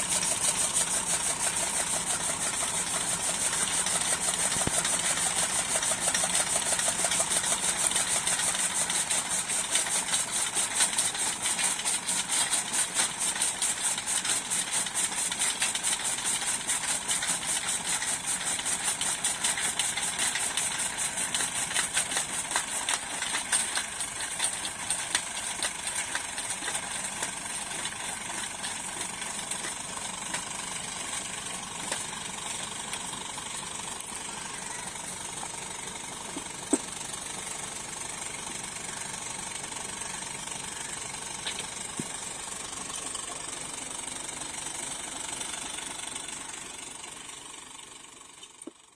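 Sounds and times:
chaff cutter chopping fodder: 0.0s - 38.7s
tractor diesel engine running: 0.0s - 48.9s.

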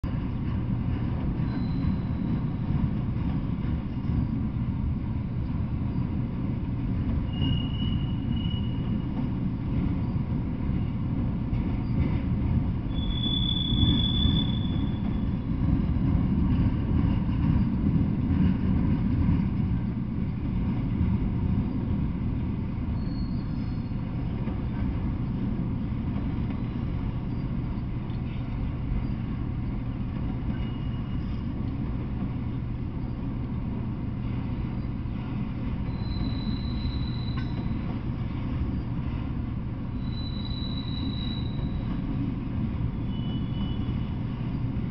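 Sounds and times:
train wheels rumbling on rail: 0.0s - 44.9s
high wheel squeals: 1.4s - 2.8s, 7.2s - 9.1s, 12.9s - 15.5s, 23.0s - 24.1s, 30.5s - 31.5s, 35.8s - 37.9s, 39.9s - 42.1s, 42.8s - 44.7s.

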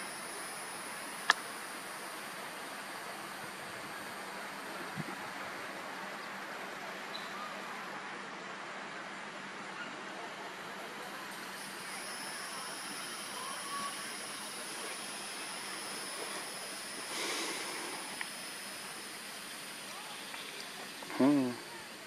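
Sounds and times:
faint high whine: 0.0s - 22.0s
outdoor background hiss: 0.0s - 22.0s
rush of noise: 10.4s - 22.0s.

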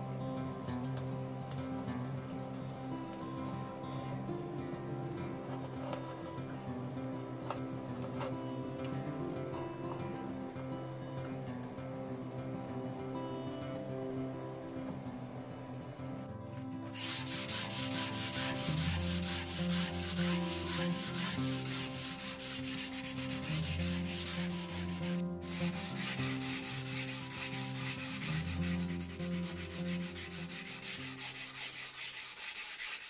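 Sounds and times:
soft instrumental music: 0.0s - 33.0s
sandpaper rasping on wood: 17.0s - 33.0s.

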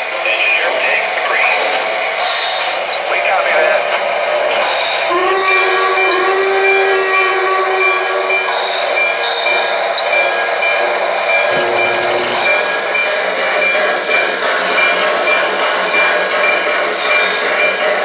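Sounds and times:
rhythmic train sounds: 0.0s - 18.0s
steam whistle: 4.8s - 9.8s.

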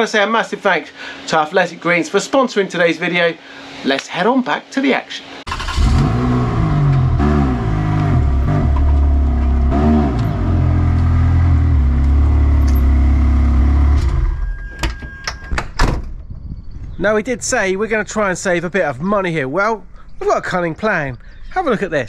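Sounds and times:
car engine throttle blips: 5.5s - 14.8s.

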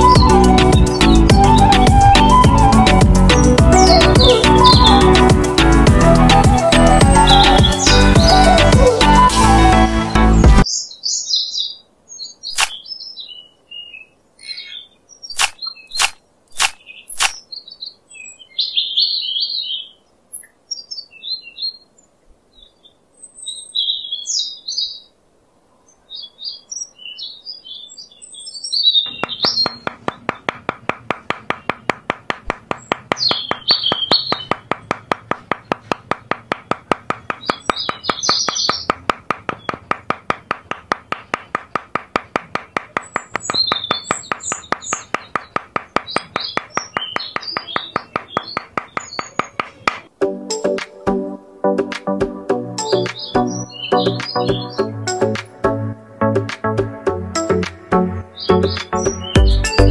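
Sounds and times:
small birds chirping: 0.0s - 9.2s, 10.4s - 50.8s, 52.0s - 59.9s
sharp clicks: 12.5s - 12.8s, 15.3s - 17.4s, 29.1s - 50.1s
hammer tapping stakes into sand: 29.1s - 50.1s.

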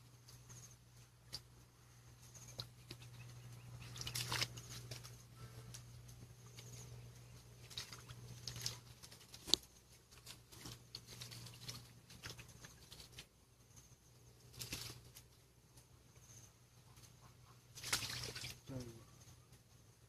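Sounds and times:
faint low hum: 0.0s - 20.0s
hands squelching in mud: 3.8s - 5.5s.

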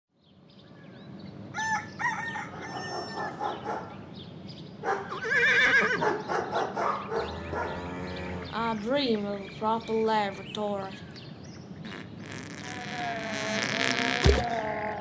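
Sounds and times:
rooster crowing: 1.6s - 3.9s
chickens calling: 1.6s - 4.2s, 4.8s - 11.2s.

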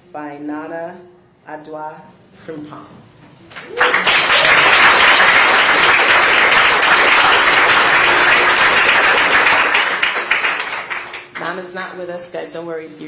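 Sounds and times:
audience applauding: 3.5s - 11.4s.

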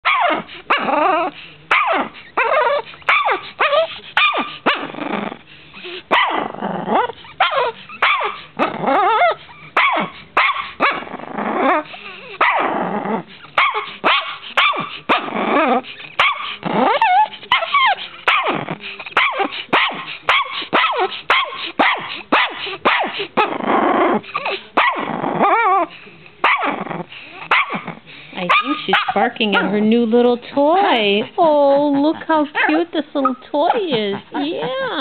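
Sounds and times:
small dog barking: 0.0s - 0.9s, 1.7s - 5.0s, 6.1s - 6.5s, 7.4s - 8.4s, 9.8s - 11.1s, 12.4s - 12.7s, 13.6s - 15.4s, 16.2s - 18.6s, 19.2s - 23.5s, 24.8s - 25.1s, 26.4s - 26.8s, 27.5s - 27.9s, 28.5s - 29.7s
dog growly barks: 0.0s - 29.9s.

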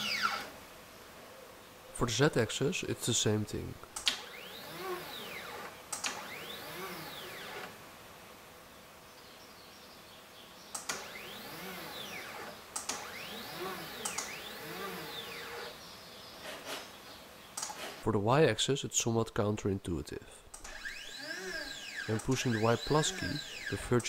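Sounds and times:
stepper motor whine: 0.0s - 0.6s, 4.1s - 7.8s, 10.9s - 15.8s, 20.6s - 24.0s
sharp clicks: 3.8s - 7.7s, 10.7s - 11.3s, 12.0s - 15.7s, 17.6s - 18.0s, 20.5s - 24.0s.

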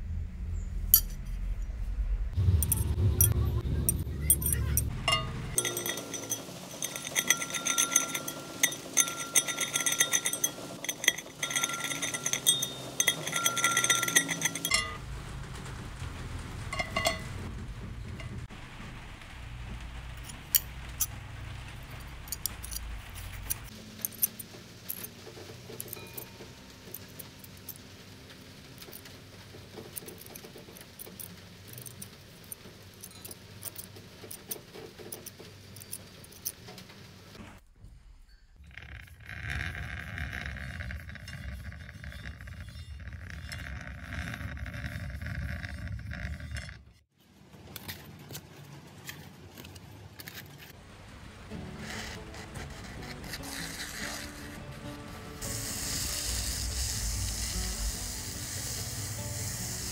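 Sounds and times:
low rumble: 0.0s - 5.6s, 14.7s - 23.7s
steady higher tone: 1.8s - 10.6s
metal clinks and taps: 2.6s - 15.0s, 16.7s - 17.3s, 21.9s - 27.8s.

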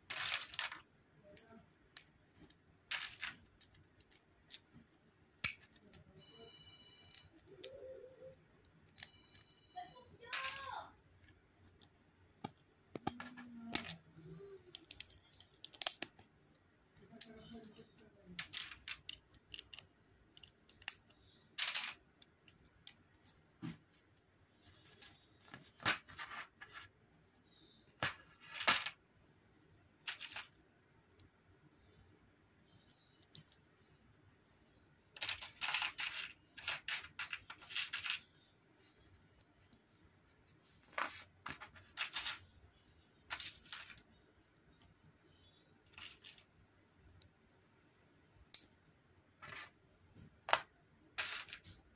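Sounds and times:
plastic bricks clicking: 10.2s - 23.2s, 35.2s - 38.2s.

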